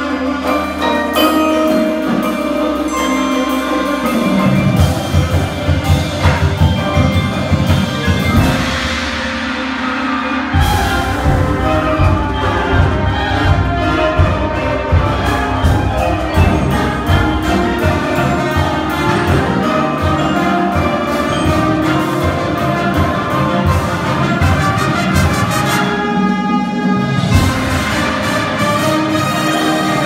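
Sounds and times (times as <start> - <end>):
brass playing: 0.0 - 30.0
mallet percussion: 0.0 - 30.0
drum hits: 4.4 - 9.4, 10.6 - 25.8, 27.2 - 29.2.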